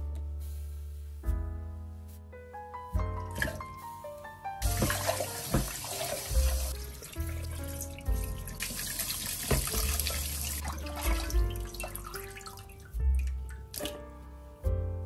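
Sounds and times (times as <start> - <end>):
background music: 0.0 - 15.0
tap water running into sink: 4.6 - 14.0.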